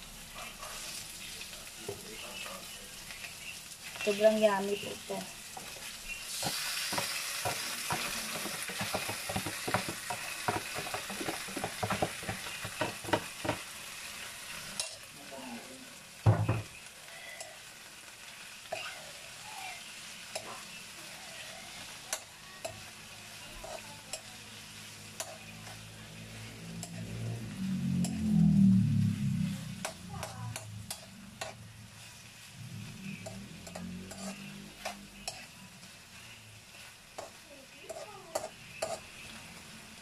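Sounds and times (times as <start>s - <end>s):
meat sizzling in a wok: 0.0s - 40.0s
metal spoon scraping a wok: 5.5s - 13.6s, 14.5s - 15.1s, 20.2s - 27.3s, 29.4s - 39.4s.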